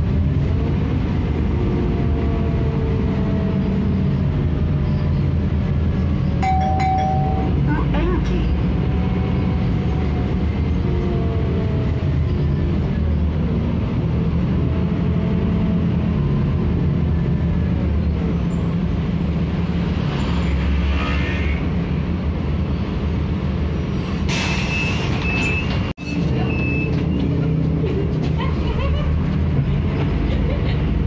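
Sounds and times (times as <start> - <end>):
bus engine droning: 0.0 - 31.0
air brake hiss: 24.1 - 25.0.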